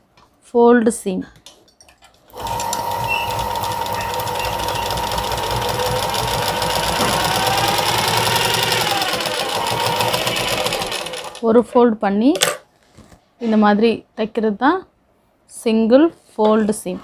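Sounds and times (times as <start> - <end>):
sewing machine stitching: 2.3 - 11.4.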